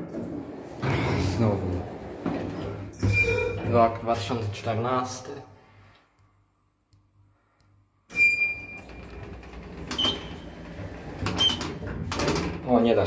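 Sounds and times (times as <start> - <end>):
elevator running hum: 0.0 - 3.5, 8.2 - 12.6.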